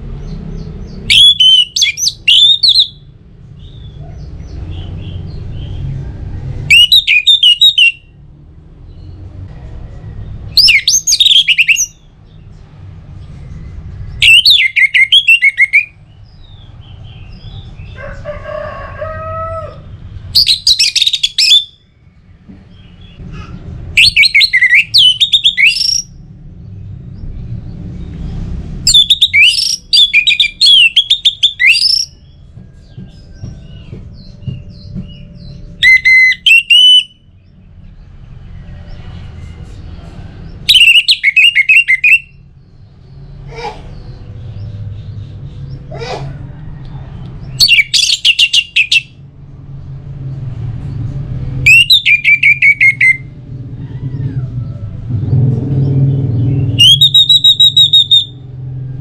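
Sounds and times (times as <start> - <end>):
thrush whistled song: 1.0 - 3.1, 6.7 - 8.1, 10.5 - 12.1, 14.2 - 16.0, 20.4 - 21.8, 24.0 - 26.1, 28.9 - 33.0, 34.7 - 37.3, 40.7 - 42.5, 47.6 - 49.2, 51.6 - 53.4, 56.5 - 58.6
low drawn-out bird call: 51.6 - 58.6.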